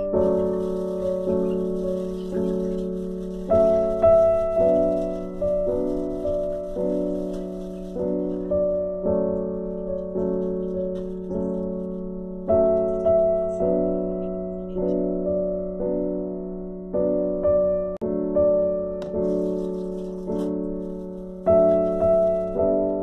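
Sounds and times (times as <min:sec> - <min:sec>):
piano music: 0:00.0 - 0:23.0.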